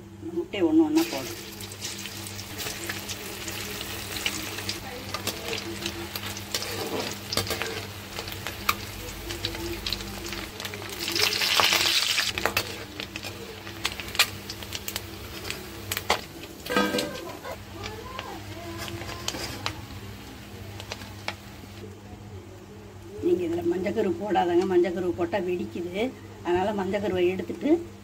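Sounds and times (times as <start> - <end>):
food deep-frying in oil: 0.9 - 21.9.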